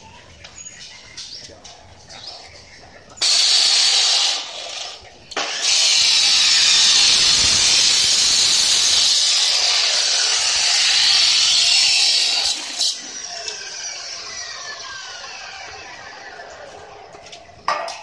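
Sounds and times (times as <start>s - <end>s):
cut-off saw grinding through metal: 3.2s - 16.6s.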